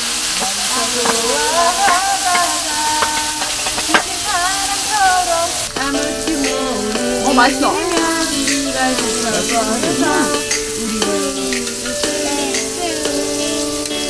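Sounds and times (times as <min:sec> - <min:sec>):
meat sizzling on griddle: 0:00.0 - 0:14.0
music tune: 0:05.7 - 0:14.0.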